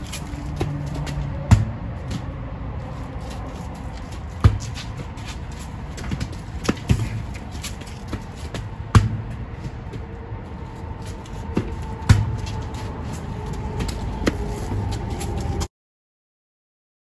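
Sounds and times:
volleyball being struck: 0:01.4 - 0:02.2, 0:08.9 - 0:09.4, 0:11.6 - 0:12.5.

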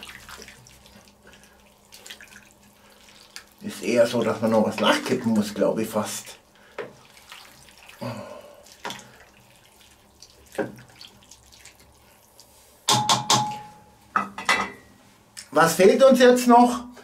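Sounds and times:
wet sloshing and scraping: 0:00.0 - 0:05.5, 0:06.6 - 0:12.8
wooden spatula stirring in pot: 0:06.6 - 0:08.0, 0:08.6 - 0:13.5
knocks on steel pot: 0:12.9 - 0:14.7.

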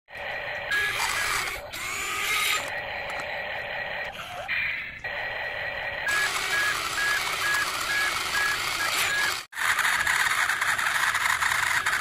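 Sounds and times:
toy gear motors whirring: 0:00.2 - 0:03.2, 0:06.1 - 0:12.0
short electronic beeps: 0:06.1 - 0:09.4.

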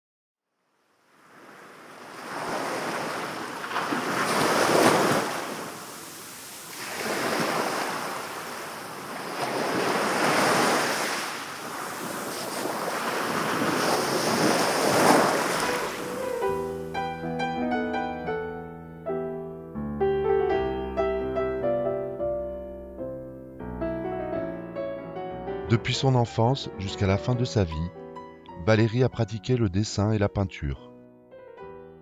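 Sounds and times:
small waves breaking on sand: 0:01.0 - 0:16.4.

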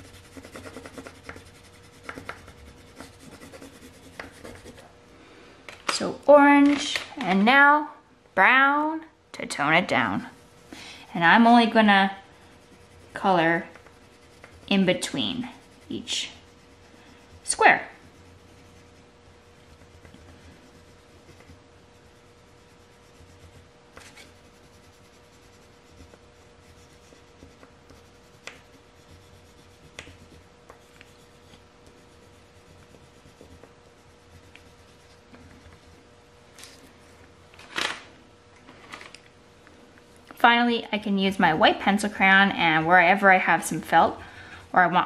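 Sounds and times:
pencil crayon scratching paper: 0:00.0 - 0:04.9, 0:11.2 - 0:36.0.

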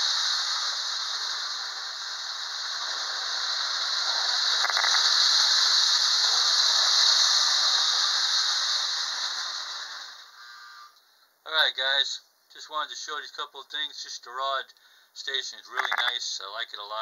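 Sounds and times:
electric whistle blowing: 0:10.3 - 0:11.0.

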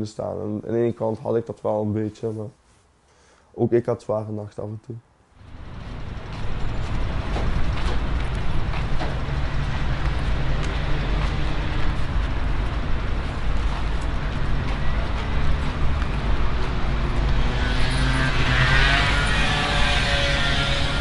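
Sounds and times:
engine rumble: 0:05.4 - 0:21.0.

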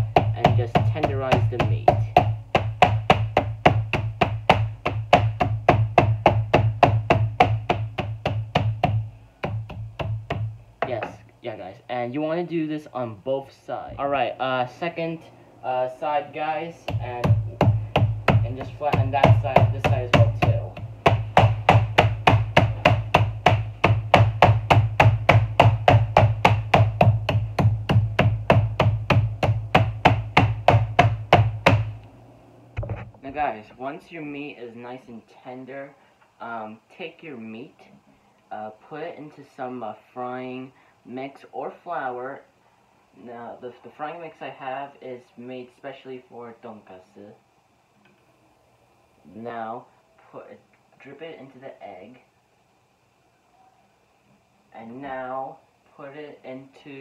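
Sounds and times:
meat mallet pounding: 0:00.0 - 0:11.2, 0:16.8 - 0:32.0.

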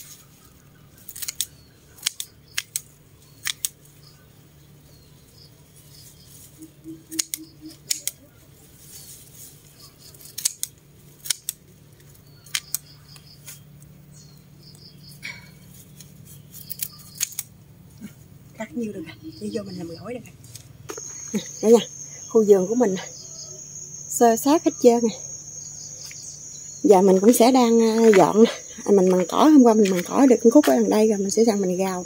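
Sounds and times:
scissors snipping stems: 0:01.0 - 0:03.9, 0:07.0 - 0:08.3, 0:10.0 - 0:13.6, 0:15.6 - 0:17.5.

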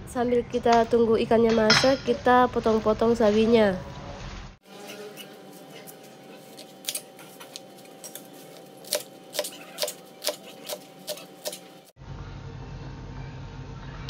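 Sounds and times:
steady low hum: 0:00.0 - 0:14.0
knife chopping on plastic board: 0:06.4 - 0:11.8.

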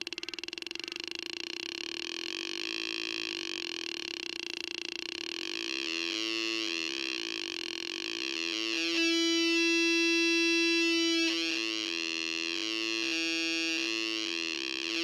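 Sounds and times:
buzzy warbling electronic tone: 0:05.4 - 0:15.0.

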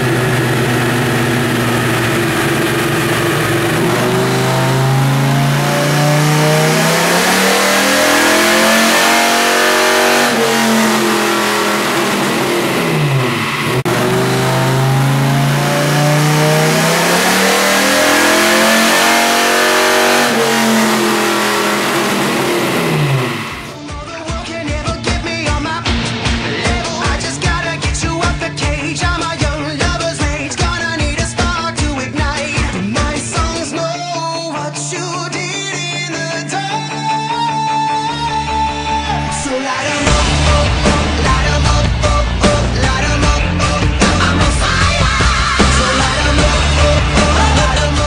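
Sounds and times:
engine at full throttle: 0:00.0 - 0:23.8, 0:38.4 - 0:48.0
music: 0:23.7 - 0:48.0.

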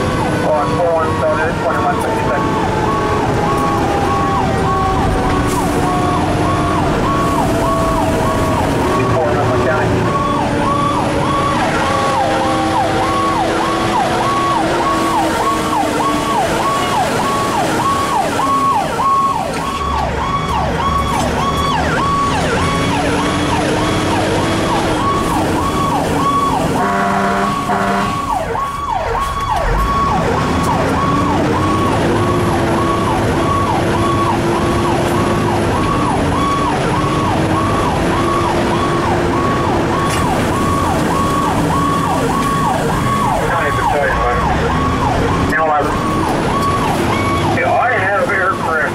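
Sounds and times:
fire engine siren: 0:00.0 - 0:48.9
horn blast: 0:26.7 - 0:28.4.

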